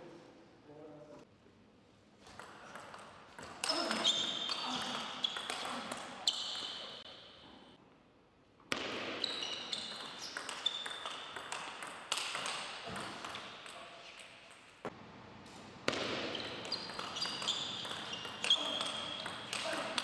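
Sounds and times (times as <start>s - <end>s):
shoes squeaking: 3.4s - 7.7s, 9.2s - 11.4s, 16.2s - 20.0s
table tennis ball clicking: 9.8s - 13.8s.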